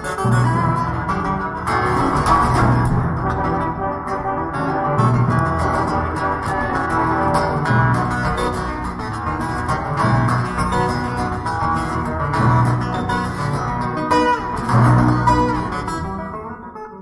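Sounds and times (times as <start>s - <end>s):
acoustic guitar plucked notes: 0.0s - 17.0s
orchestral accompaniment: 0.2s - 9.2s
low bass note: 0.2s - 16.2s.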